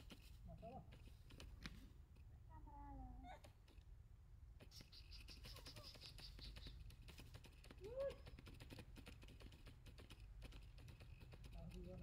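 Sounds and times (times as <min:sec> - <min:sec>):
faint clicks and ticks: 0:04.6 - 0:12.0.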